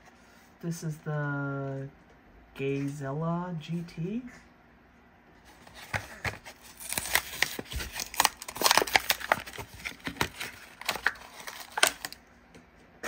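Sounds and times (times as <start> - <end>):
plastic blister crackling and tearing: 5.7 - 12.2.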